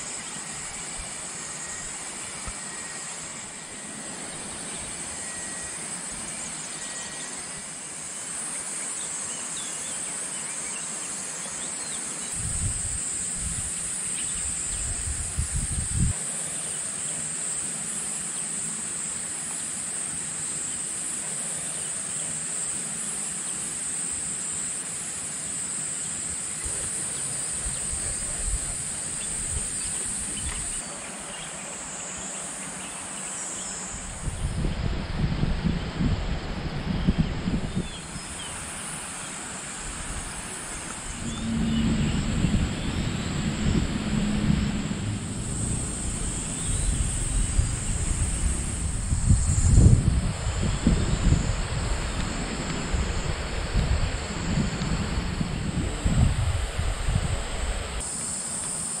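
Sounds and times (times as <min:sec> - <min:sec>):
insects droning: 0:00.0 - 0:59.0
low rumbles: 0:39.9 - 0:57.9.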